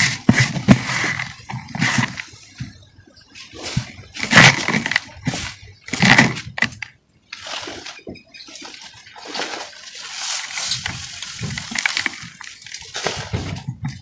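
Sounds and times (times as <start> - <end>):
dry dirt crumbling by hand: 3.6 - 7.8, 9.2 - 14.0.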